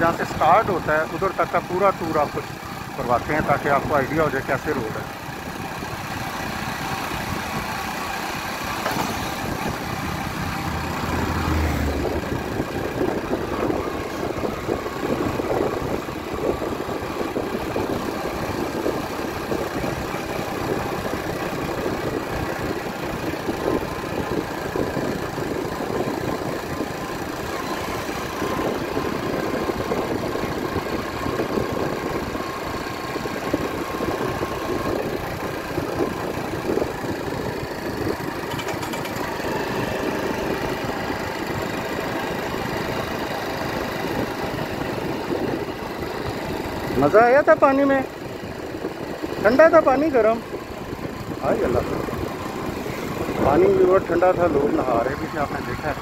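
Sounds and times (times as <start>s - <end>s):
motorcycle engine running: 0.0s - 56.0s
road noise: 0.0s - 56.0s
wind noise: 9.0s - 20.0s, 43.8s - 56.0s.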